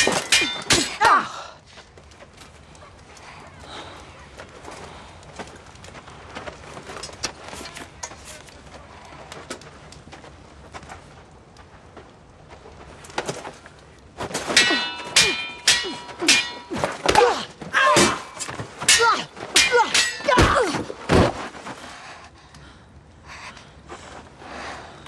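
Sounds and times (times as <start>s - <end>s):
steel swords clashing: 0.0s - 1.4s, 14.4s - 21.2s.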